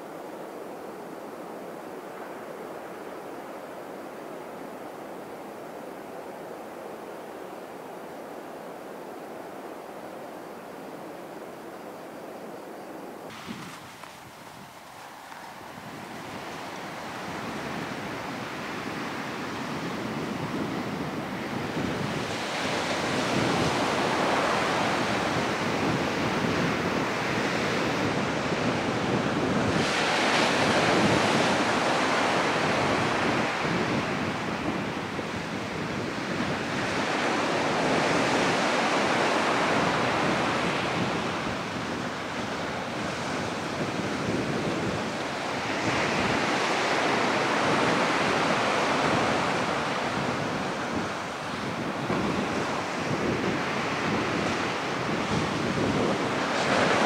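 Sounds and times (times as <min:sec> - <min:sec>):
ocean waves breaking on beach: 0:00.0 - 0:57.0.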